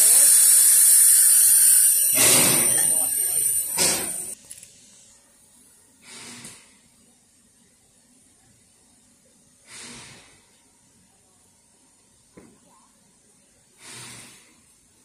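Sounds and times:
steam hissing: 0.0 - 4.4.

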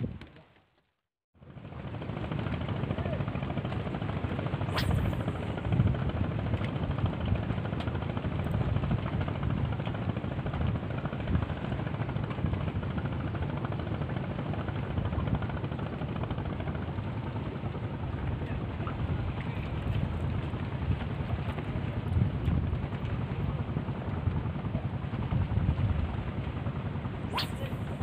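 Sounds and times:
fishing rod swishing in a cast: 4.7 - 5.7, 27.3 - 28.0
wind buffeting microphone: 18.3 - 28.0.

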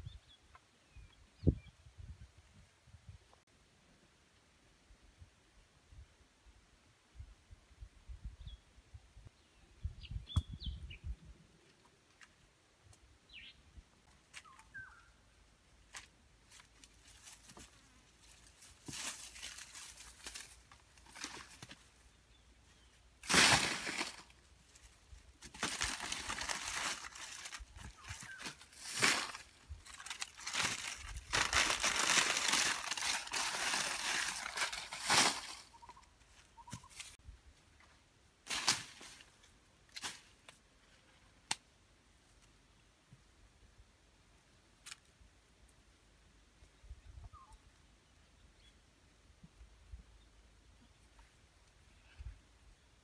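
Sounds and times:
dry leaves rustling and crackling: 15.9 - 22.0, 23.2 - 36.0, 38.4 - 40.3.

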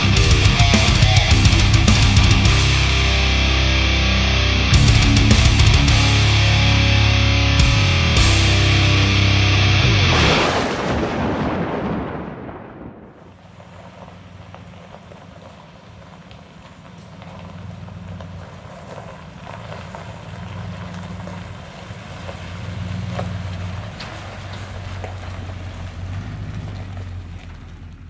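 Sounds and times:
truck engine hum: 0.0 - 11.2, 13.3 - 28.0
tyres crunching on dirt: 0.0 - 11.5, 13.3 - 28.0.

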